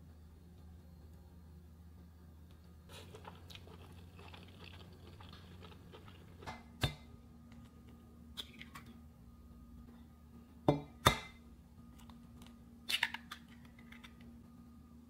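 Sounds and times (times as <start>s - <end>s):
crunchy chewing: 2.9s - 6.6s.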